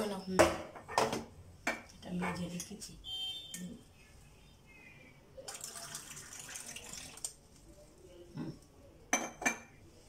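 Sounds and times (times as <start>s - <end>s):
water pouring from a jug: 5.4s - 7.5s.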